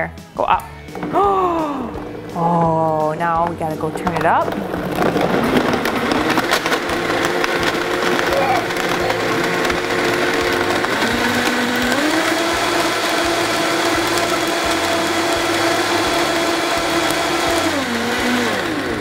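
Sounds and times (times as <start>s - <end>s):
blender motor running: 0.9s - 2.4s, 4.0s - 19.0s
blender winding down whine: 4.5s - 19.0s.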